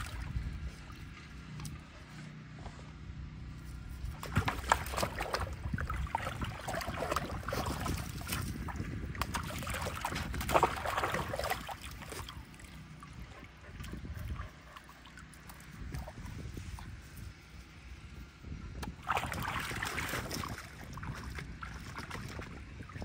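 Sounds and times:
dogs splashing in water: 0.0s - 1.2s, 4.1s - 17.0s, 18.8s - 23.0s
water sloshing and slapping: 0.0s - 2.0s, 4.1s - 17.0s, 18.8s - 23.0s.

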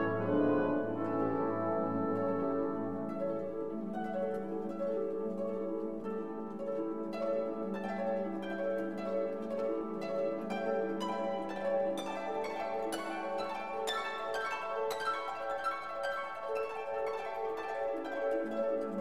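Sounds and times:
plucked string notes: 0.0s - 3.7s.

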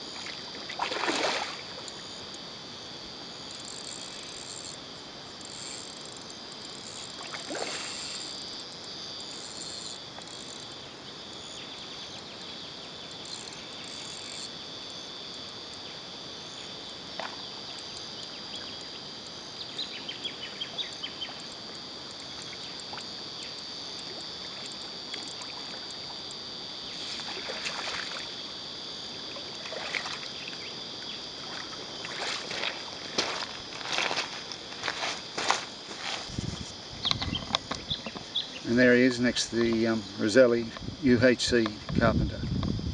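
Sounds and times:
insects droning: 0.0s - 42.9s
fish splashing in water: 0.8s - 1.7s.

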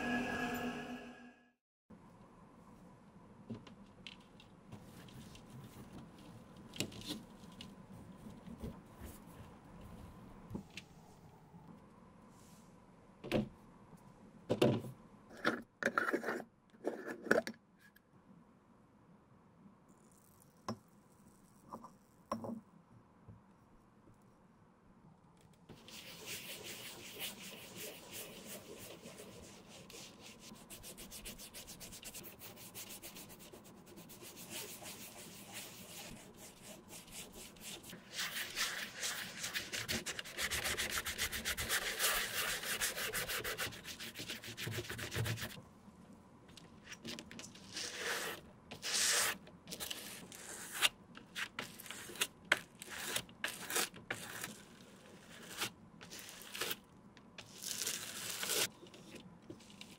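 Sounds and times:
bristle brush strokes: 25.8s - 45.6s
cotton ball wet scrubbing: 25.8s - 45.6s.

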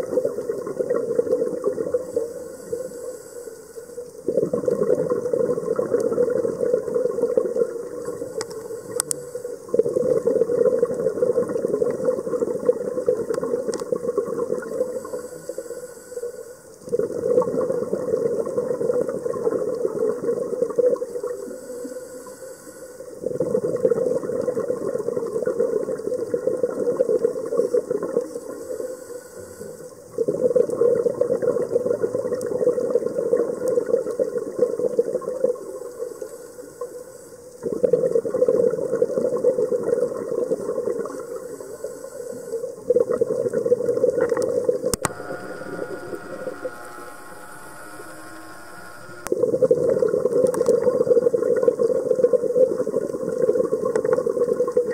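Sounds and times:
underwater exhaled bubbles rushing: 0.0s - 2.9s, 4.1s - 9.0s, 9.6s - 15.2s, 16.8s - 21.6s, 23.1s - 28.8s, 30.0s - 36.2s, 37.6s - 41.8s, 42.6s - 54.9s.

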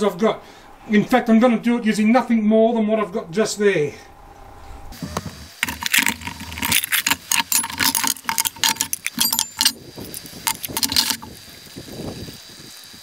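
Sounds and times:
metal pots clattering: 5.5s - 11.3s.

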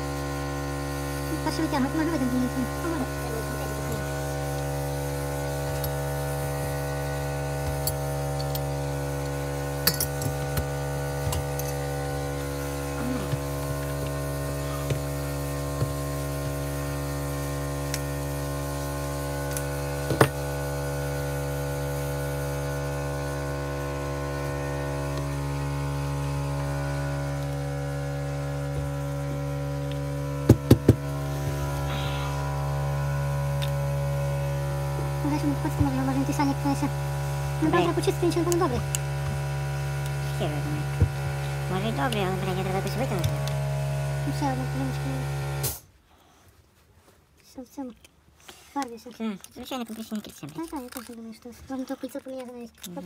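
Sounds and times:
electrical hum: 0.0s - 46.3s
metal tools clinking: 7.7s - 8.8s, 9.8s - 12.1s
sharp knocks: 30.5s - 31.0s.

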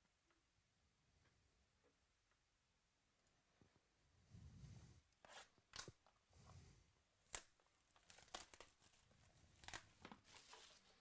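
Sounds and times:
plastic shrink-wrap tearing: 7.3s - 11.0s.

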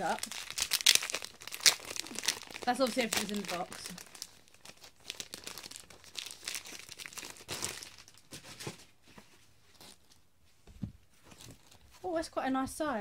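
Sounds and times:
plastic packaging crinkling and tearing: 0.0s - 8.7s, 11.4s - 11.9s.

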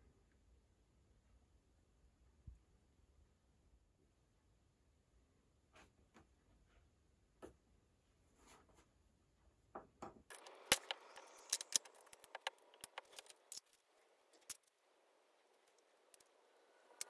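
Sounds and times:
router parts clicking and clinking: 10.3s - 14.7s.

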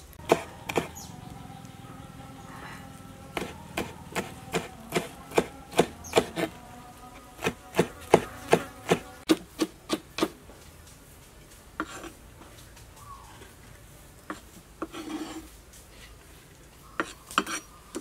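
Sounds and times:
knife chopping on wooden board: 0.2s - 1.0s, 3.3s - 6.6s, 7.3s - 10.4s.

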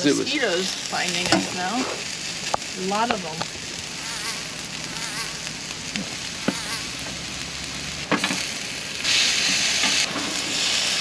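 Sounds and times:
food sizzling on griddle: 0.0s - 11.0s.

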